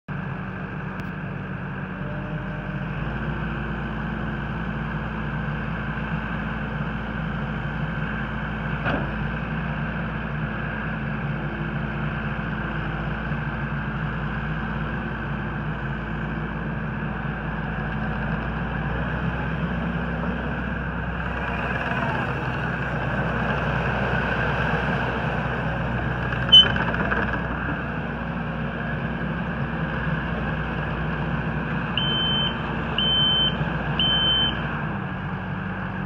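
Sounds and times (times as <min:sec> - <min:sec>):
diesel engine running: 0:00.1 - 0:36.0
backup alarm beeps: 0:32.0 - 0:34.6.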